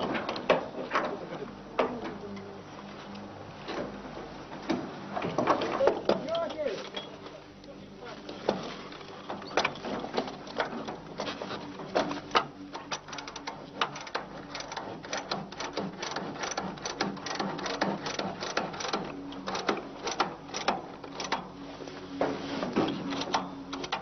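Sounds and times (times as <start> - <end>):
steady low hum: 0.0 - 24.0
rapid mechanical clicking and clattering: 9.0 - 21.5, 23.0 - 24.0.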